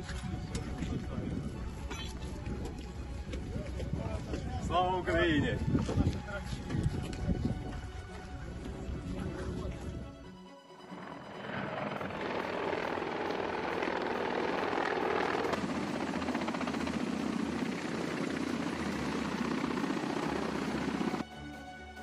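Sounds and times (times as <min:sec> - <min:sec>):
helicopter turbine noise: 0:10.6 - 0:21.3
helicopter rotor chopping: 0:10.8 - 0:21.2.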